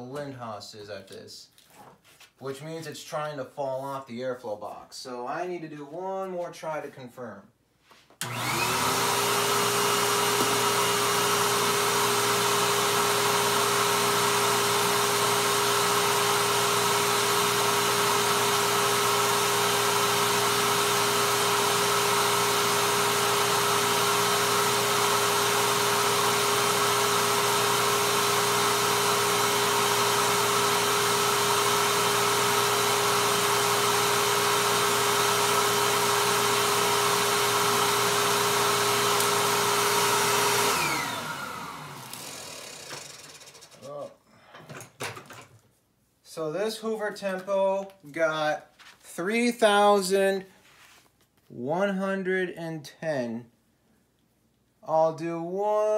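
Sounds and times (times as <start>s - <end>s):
vacuum cleaner running: 8.2s - 44.0s
vacuum cleaner winding down: 8.2s - 44.0s.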